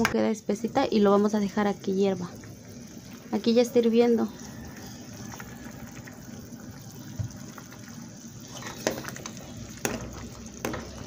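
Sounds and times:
thick sauce bubbling in a pot: 0.0 - 11.0
spatula stirring sauce: 4.2 - 11.0.

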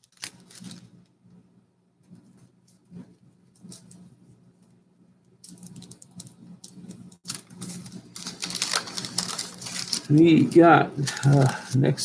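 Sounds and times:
cards rustling and clicking: 0.0 - 1.0, 5.4 - 11.8.

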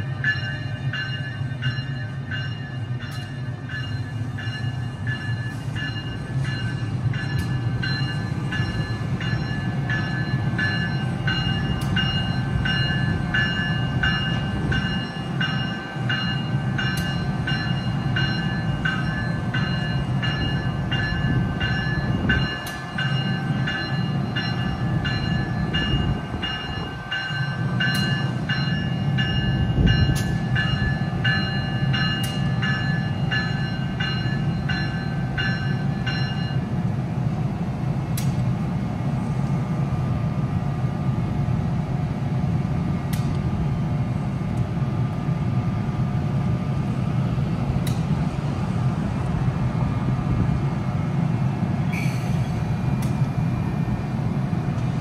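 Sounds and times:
locomotive bell ringing: 0.0 - 36.9.

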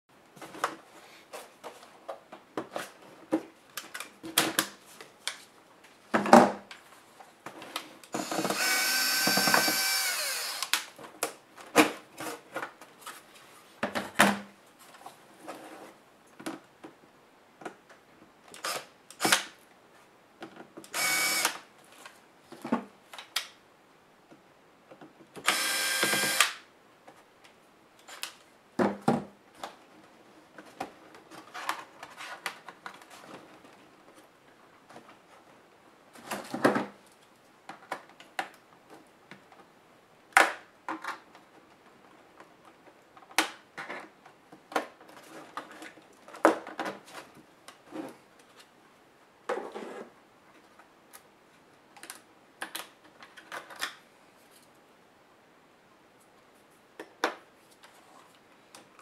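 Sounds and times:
electric screwdriver whirring: 8.2 - 10.8, 20.9 - 21.6, 25.4 - 26.6.

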